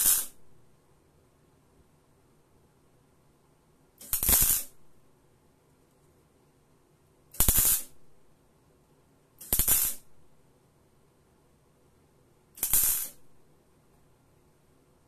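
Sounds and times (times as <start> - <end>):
welding arc crackling: 0.0 - 0.4, 4.0 - 4.8, 7.4 - 8.0, 9.4 - 10.1, 12.6 - 13.2.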